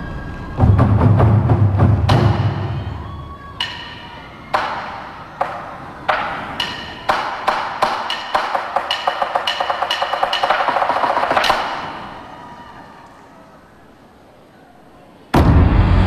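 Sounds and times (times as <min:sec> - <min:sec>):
heavy low drum: 0:00.6 - 0:03.0, 0:15.4 - 0:16.0
wood-block strikes: 0:03.6 - 0:11.8.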